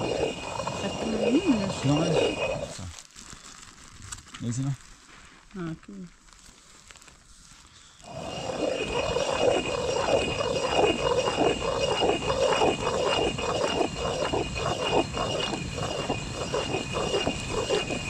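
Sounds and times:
stone quern grinding grain: 0.0 - 3.0, 8.0 - 18.0.

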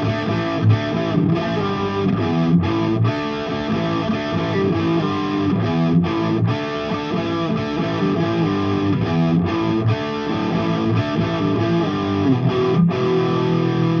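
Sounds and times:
overdriven electric guitar riff: 0.0 - 14.0.

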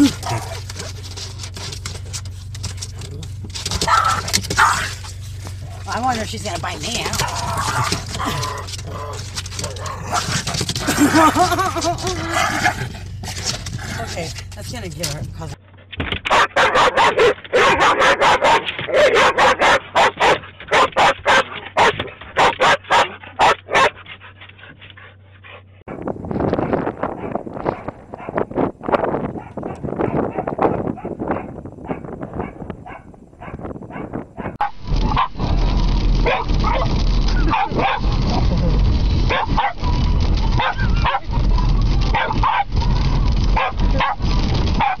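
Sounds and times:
car road and engine rumble: 0.0 - 45.0
small dog barking: 16.3 - 24.0, 29.4 - 35.3, 36.2 - 38.1, 39.3 - 40.0, 40.6 - 41.4, 42.1 - 42.8, 43.6 - 44.2, 44.8 - 45.0.

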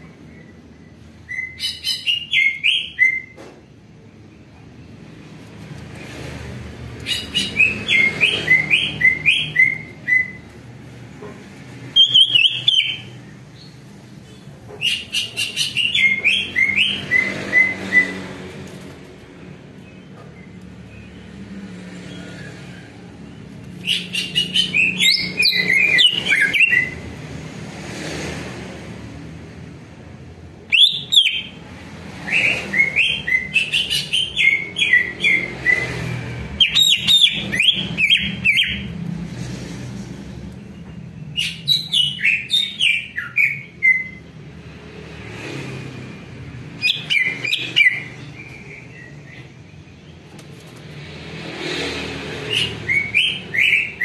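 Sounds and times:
bird chirping: 0.3 - 3.4, 6.9 - 10.6, 11.9 - 18.3, 23.8 - 27.1, 30.7 - 31.6, 32.2 - 39.0, 40.6 - 44.3, 46.8 - 50.3, 52.4 - 54.0.

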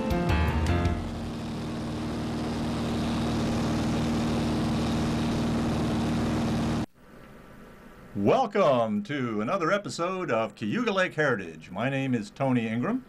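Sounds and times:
propeller aircraft drone: 0.0 - 6.9.

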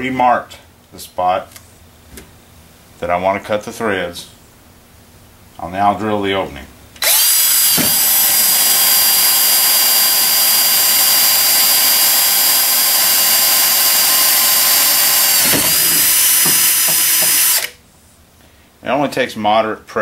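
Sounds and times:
cordless drill drilling metal: 7.0 - 17.8.

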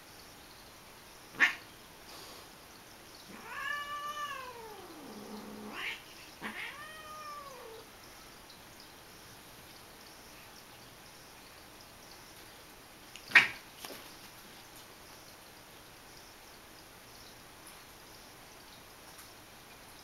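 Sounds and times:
cat meowing: 3.3 - 7.9.

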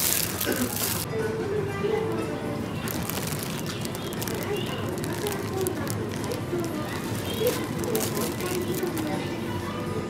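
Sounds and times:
rustling noise: 0.0 - 1.1, 2.8 - 9.2
background music: 0.0 - 9.8.

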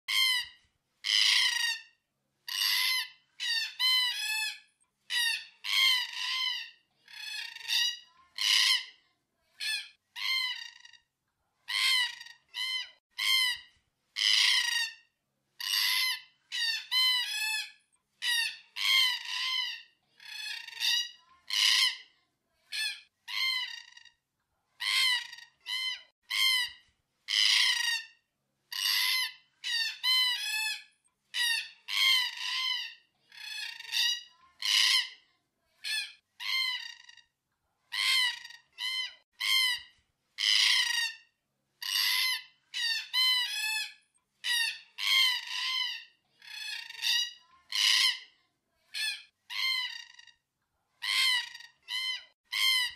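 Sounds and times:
cockatoos calling: 14.2 - 14.9.

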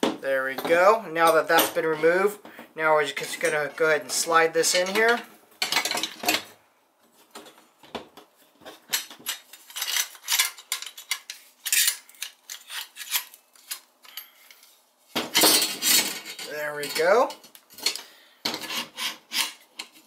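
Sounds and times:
metal clinks and scrapes: 8.9 - 20.0.

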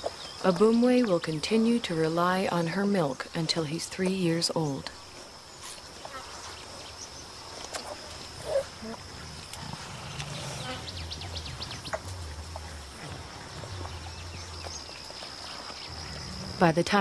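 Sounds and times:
high insect drone: 5.0 - 17.0
gorillas rumbling grunts: 8.0 - 16.8
bird chirps: 10.1 - 16.5.

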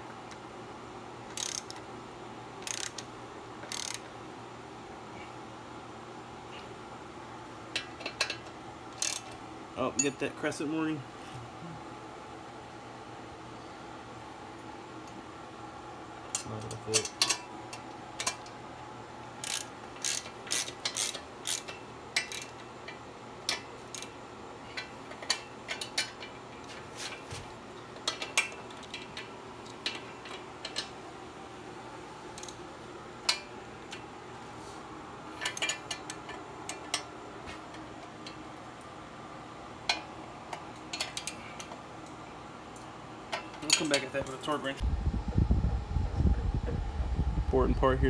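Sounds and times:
socket ratchet clicking: 1.3 - 1.8, 2.6 - 3.0, 3.7 - 4.0, 9.0 - 9.3, 19.4 - 22.5.

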